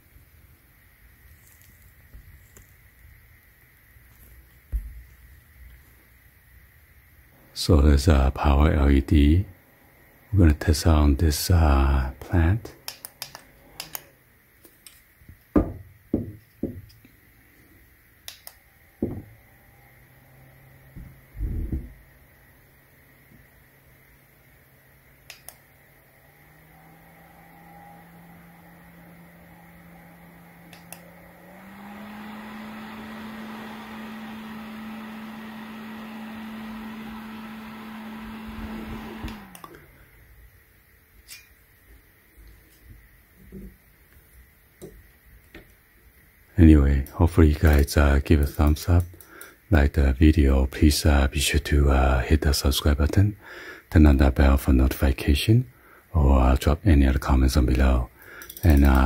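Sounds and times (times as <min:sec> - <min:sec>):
desk fan humming: 0:00.0 - 0:55.4, 0:56.0 - 0:59.0
sharp clicks: 0:12.8 - 0:14.1, 0:18.2 - 0:18.6, 0:25.3 - 0:25.6
dull low thumps: 0:21.0 - 0:22.0.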